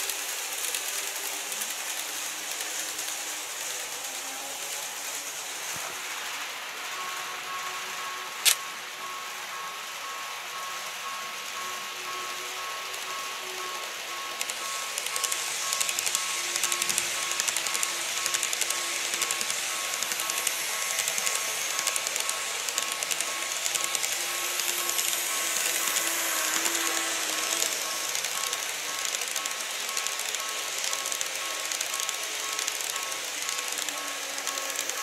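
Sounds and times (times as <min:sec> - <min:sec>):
model train wheels clattering: 0:00.0 - 0:06.0, 0:11.1 - 0:35.0
level crossing warning beeps: 0:07.0 - 0:35.0.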